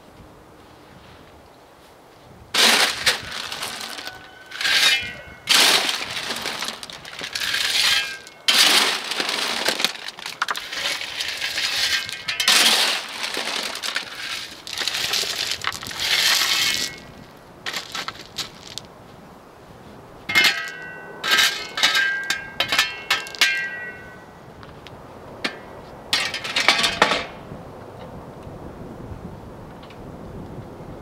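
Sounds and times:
shovel scraping gravel: 2.6 - 18.9, 20.3 - 24.2, 26.2 - 27.2.

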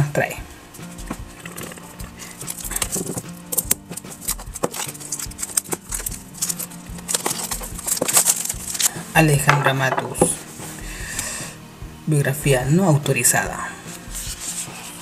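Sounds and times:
background music with low beat: 0.0 - 15.0
plastic wrap crinkling and tearing: 0.9 - 9.1.

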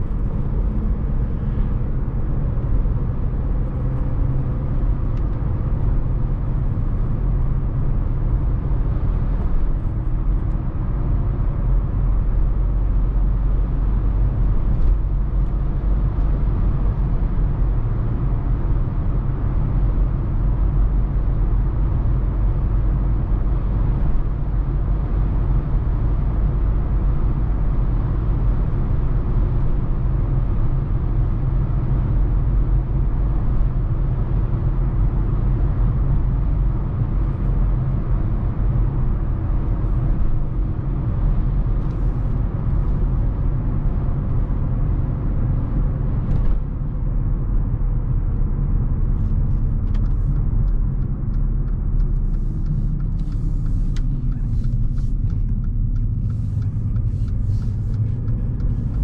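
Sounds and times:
car engine and tyres rumbling: 0.0 - 59.0.

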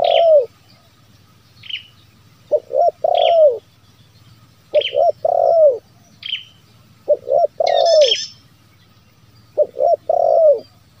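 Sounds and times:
dove cooing: 0.0 - 0.6, 2.5 - 3.7, 4.7 - 5.9, 7.0 - 8.3, 9.5 - 11.0
small birds chirping: 0.0 - 11.0.

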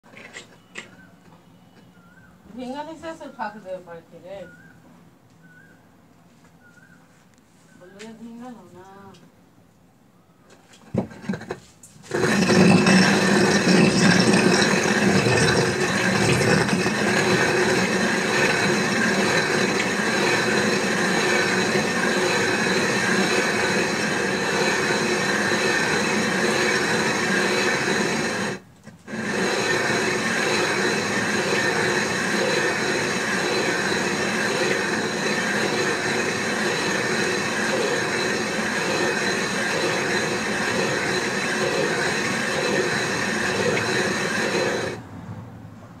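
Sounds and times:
stone quern grinding grain: 11.2 - 45.0.

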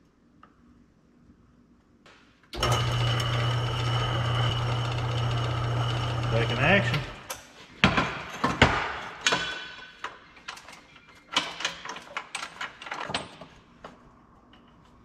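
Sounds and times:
metal clanks and knocks: 7.8 - 13.5.

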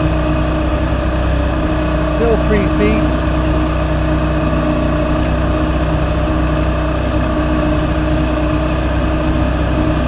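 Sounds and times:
outboard motor running: 0.0 - 10.0.

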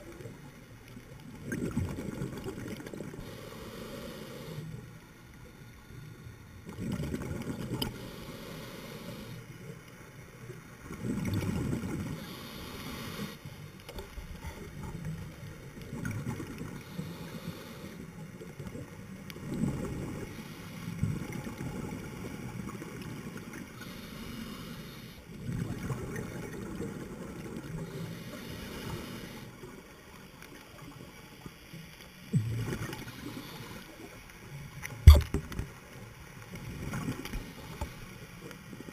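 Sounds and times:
regulator hiss: 3.2 - 4.8.

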